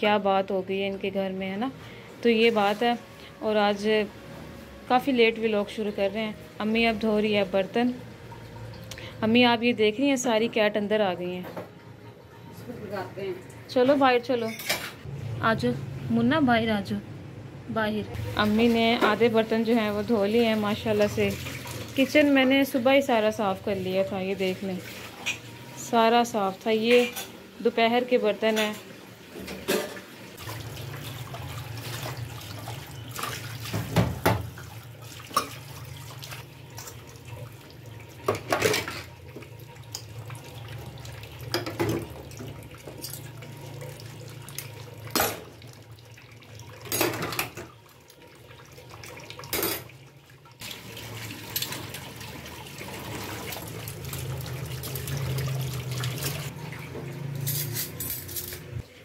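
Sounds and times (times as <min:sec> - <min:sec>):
tap water running into sink: 0:30.4 - 0:57.5.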